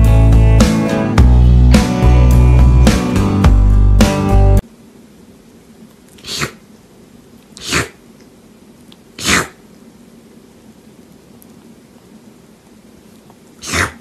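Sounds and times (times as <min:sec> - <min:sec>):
kitten sneezing: 0:06.2 - 0:06.6, 0:07.6 - 0:08.0, 0:09.2 - 0:09.6, 0:13.6 - 0:14.0.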